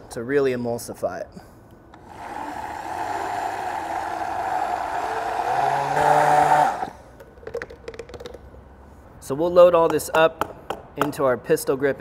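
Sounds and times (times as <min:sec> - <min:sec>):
immersion blender motor whine: 0:02.0 - 0:07.0.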